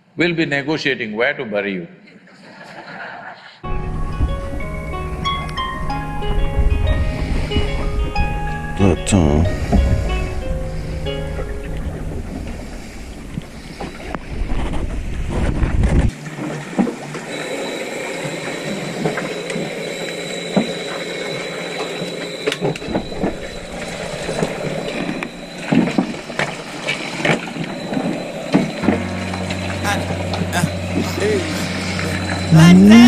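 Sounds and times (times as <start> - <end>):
machinery hum with high whine: 15.9 - 33.0
deep machinery rumble: 22.8 - 33.0.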